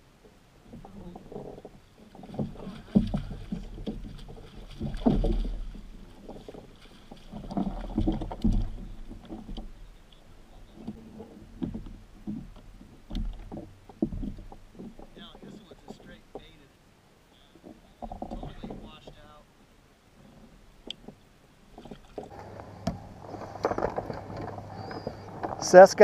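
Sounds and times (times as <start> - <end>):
water sloshing: 0.0 - 26.0
net knocking against kayak hull: 0.8 - 9.9, 10.6 - 16.6, 17.6 - 19.3.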